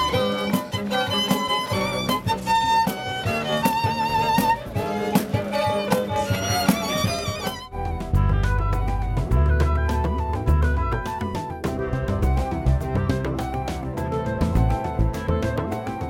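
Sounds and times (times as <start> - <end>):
solo violin with vibrato: 0.0 - 7.7
sharp percussive beat: 0.0 - 16.0.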